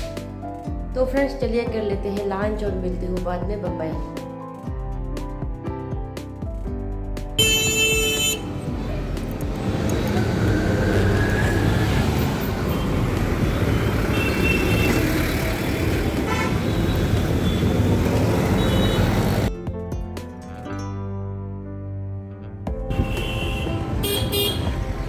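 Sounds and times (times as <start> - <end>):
vehicle horns honking: 7.4 - 8.6, 13.7 - 15.1, 16.2 - 19.5, 22.9 - 24.8
vehicle engines passing: 8.4 - 19.5, 23.4 - 25.0.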